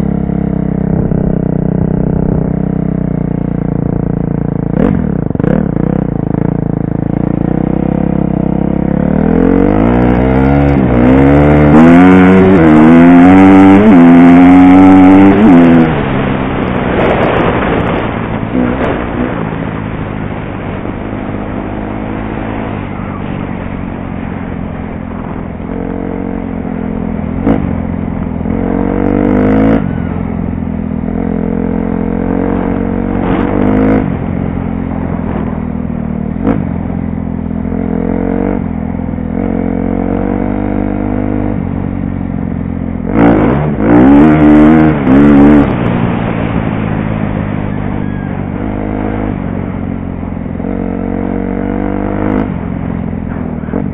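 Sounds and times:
dirt bike engine revving: 4.7 - 37.0, 43.0 - 50.0, 50.6 - 53.9.

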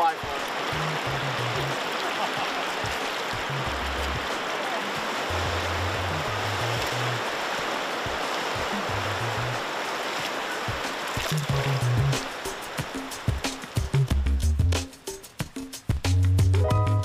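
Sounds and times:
river rushing over gravel: 0.0 - 14.0
background music with low bass: 0.3 - 1.8, 3.4 - 4.4, 5.3 - 7.3, 8.6 - 9.7, 10.7 - 17.0.

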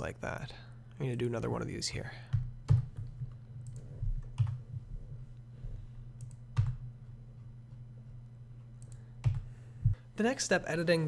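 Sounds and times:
steady low hum: 0.0 - 11.0
keyboard and mouse clicks: 2.4 - 4.6.

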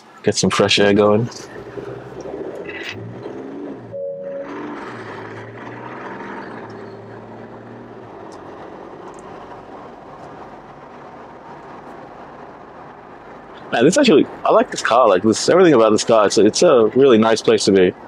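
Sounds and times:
road and wind noise: 0.0 - 18.0
car engine running: 0.8 - 15.0.

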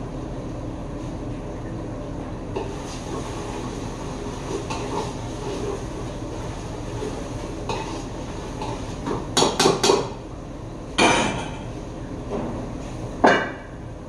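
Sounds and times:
pots and pans clattering: 4.3 - 5.9, 7.0 - 10.1.

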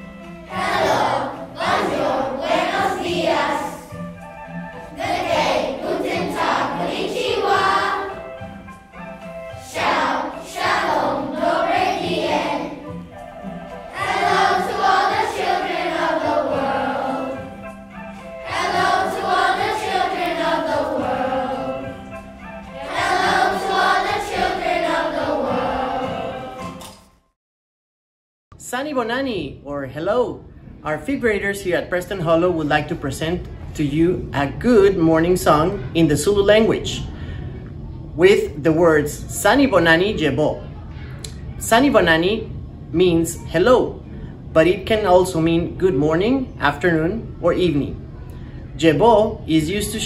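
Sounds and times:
children's choir singing: 0.0 - 27.0.

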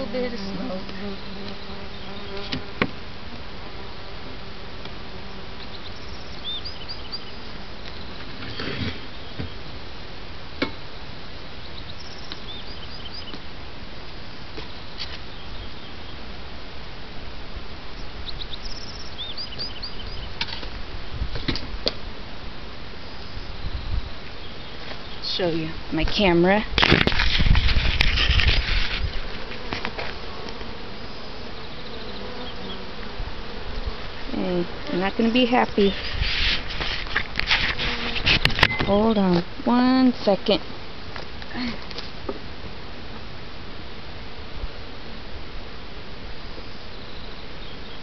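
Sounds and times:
honeybees buzzing: 0.0 - 48.0
high bird chirps: 5.6 - 8.2, 11.6 - 13.4, 18.2 - 20.4
steady rushing hiss: 32.8 - 48.0.

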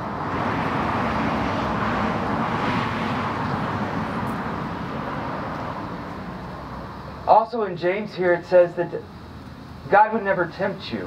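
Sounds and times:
passing vehicle rushing drone: 0.0 - 7.3.

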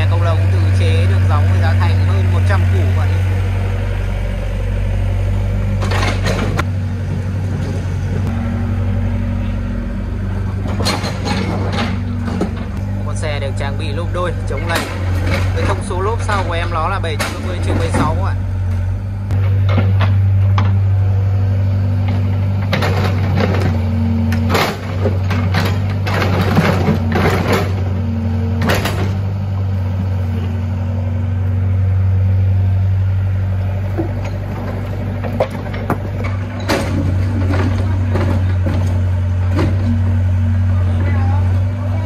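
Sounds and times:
diesel engine running: 0.0 - 42.0
excavator bucket digging rubble: 5.1 - 6.7, 10.2 - 30.8, 33.0 - 41.8.

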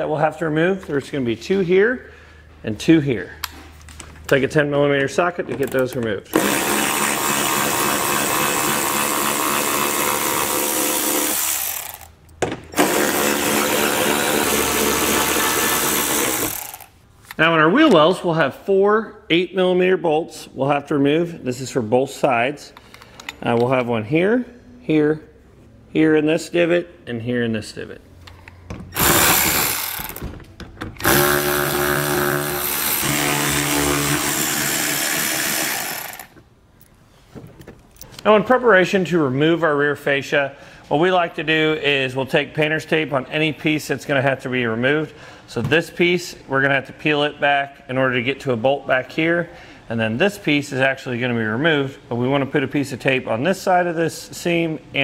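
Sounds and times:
power ratchet running: 6.4 - 12.2, 12.8 - 16.9, 29.0 - 30.2, 31.0 - 36.4.

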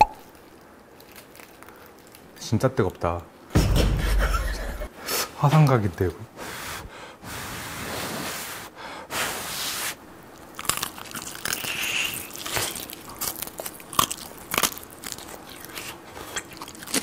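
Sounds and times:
crunching and chewing: 0.2 - 2.4, 10.3 - 17.0.

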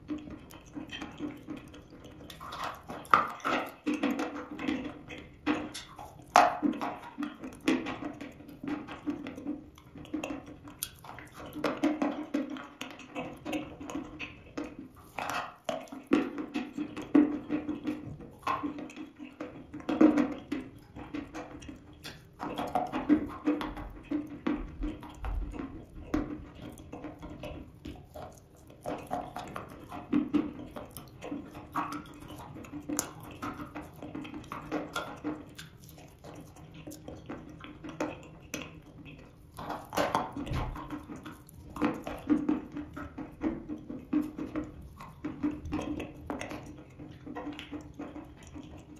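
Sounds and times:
chewing crunchy chalk: 0.0 - 48.9
wet sticky mouth sounds: 31.9 - 42.1.

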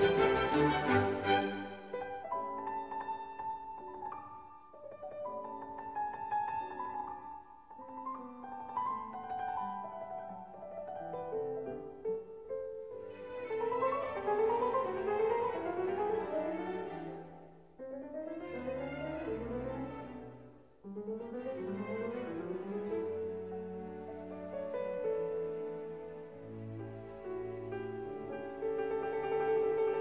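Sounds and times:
bowed strings: 0.0 - 2.8
piano: 0.0 - 30.0.

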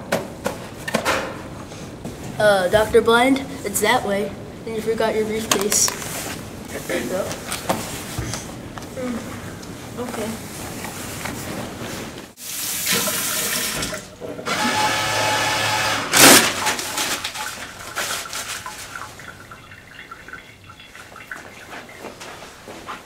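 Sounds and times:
paper towel rustling: 5.8 - 8.6, 9.8 - 12.8, 16.6 - 19.4
water running from tap: 12.4 - 14.2, 16.9 - 22.0.

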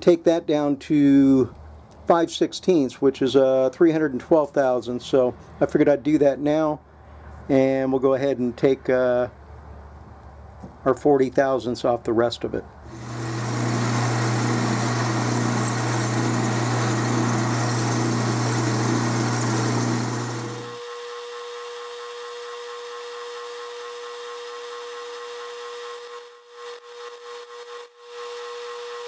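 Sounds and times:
hiss of lathe tool cutting: 12.9 - 20.8
lathe motor hum: 12.9 - 20.8
thin whine: 12.9 - 20.9.

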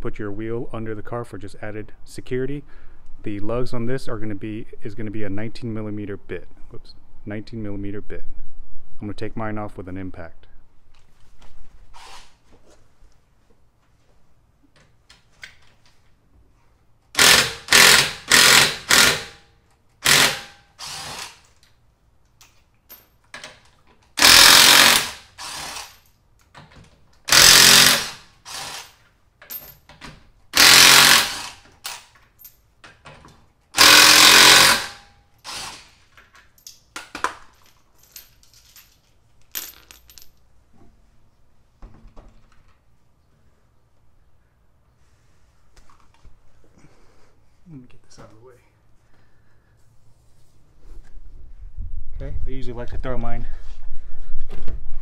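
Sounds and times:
impact wrench bursts: 17.1 - 21.5, 24.2 - 26.1, 27.3 - 29.0, 30.5 - 32.1, 33.8 - 36.0.

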